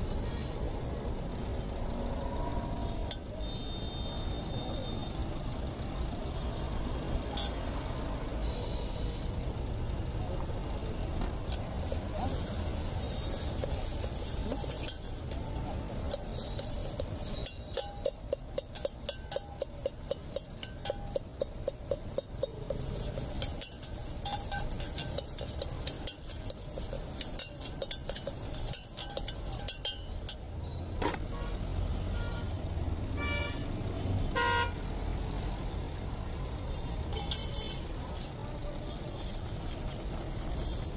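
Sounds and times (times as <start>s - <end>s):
street traffic: 0.0s - 40.9s
metal ladle clinking against tin: 13.6s - 30.5s
vehicle horn honking: 33.2s - 33.7s, 34.3s - 34.8s.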